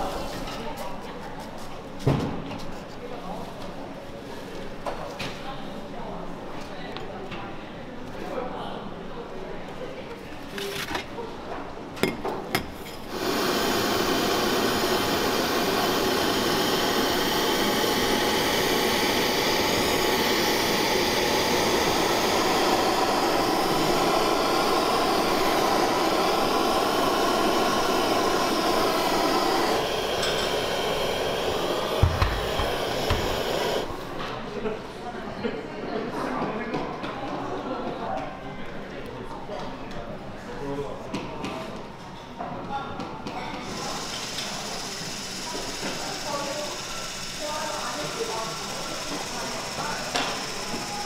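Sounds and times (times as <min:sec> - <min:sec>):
blowtorch flame hissing: 0:12.8 - 0:34.2, 0:43.6 - 0:51.0.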